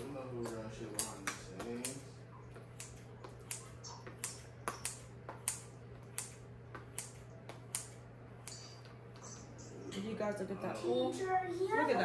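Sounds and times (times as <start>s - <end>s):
scissors snipping: 0.4s - 2.0s, 2.7s - 8.9s.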